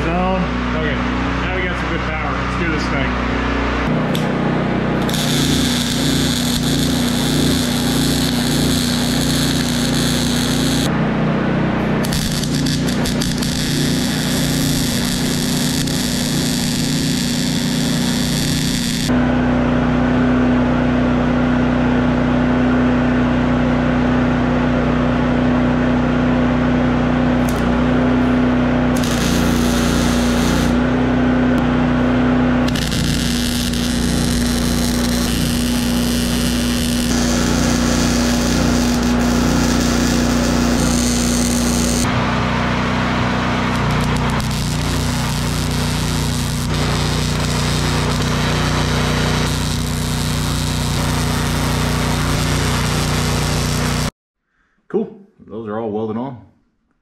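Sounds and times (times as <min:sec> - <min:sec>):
generator humming: 0:00.0 - 0:21.6, 0:24.4 - 0:54.1
welder arc crackling and hissing: 0:05.0 - 0:10.9, 0:12.0 - 0:19.2, 0:27.4 - 0:27.8, 0:29.0 - 0:30.8, 0:32.7 - 0:42.1, 0:43.7 - 0:54.1.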